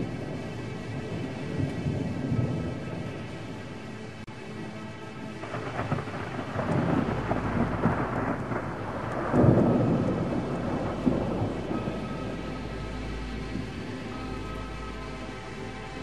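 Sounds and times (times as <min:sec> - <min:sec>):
thunder rolling: 0:00.0 - 0:03.8, 0:05.3 - 0:14.5
steady rain: 0:00.0 - 0:16.0.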